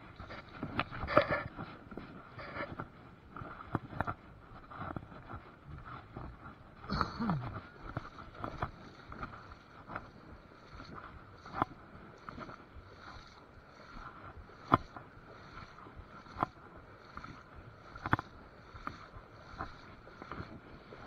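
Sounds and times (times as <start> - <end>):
river water splashing: 6.8 - 21.0.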